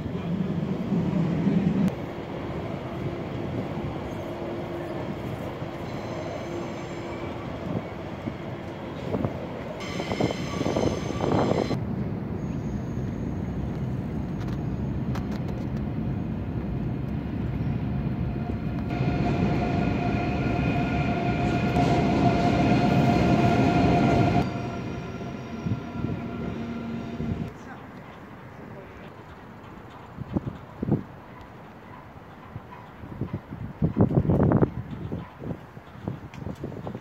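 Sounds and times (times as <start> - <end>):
train rumbling over bridge: 0.0 - 36.2
high whine: 18.2 - 27.5.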